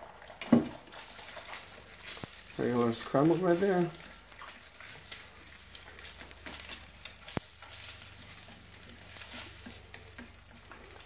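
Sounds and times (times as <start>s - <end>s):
eggs sizzling faintly in pan: 0.0s - 11.0s.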